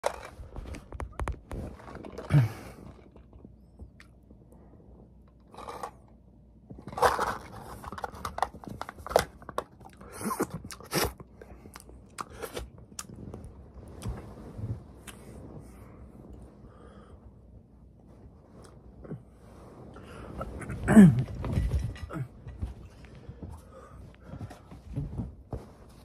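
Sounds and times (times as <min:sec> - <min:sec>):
plastic cup crackling: 0:06.8 - 0:10.9.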